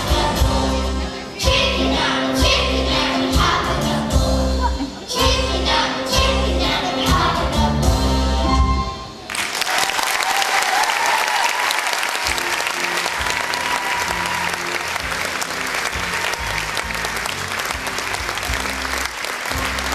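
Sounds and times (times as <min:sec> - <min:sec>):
audience applauding: 0:09.3 - 0:19.9.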